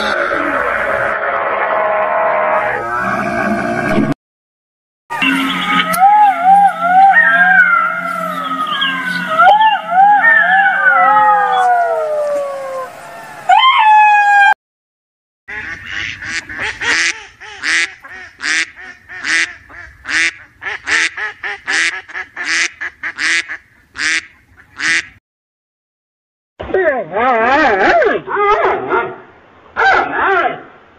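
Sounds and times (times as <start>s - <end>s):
ducks quacking: 5.1s - 10.6s, 15.5s - 25.2s
wavering animal cries: 5.1s - 14.6s.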